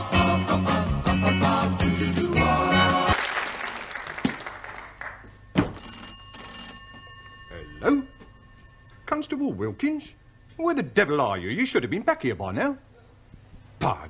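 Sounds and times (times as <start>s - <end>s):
telephone bell ringing: 3.2s - 11.1s.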